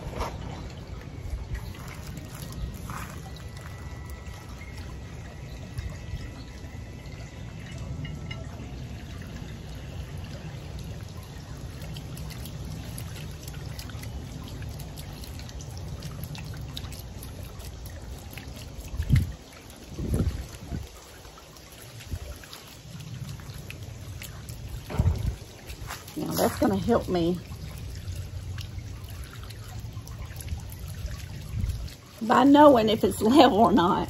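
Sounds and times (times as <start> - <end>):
water pouring into a bowl: 0.0 - 34.0
fountain jet spraying: 21.0 - 29.6.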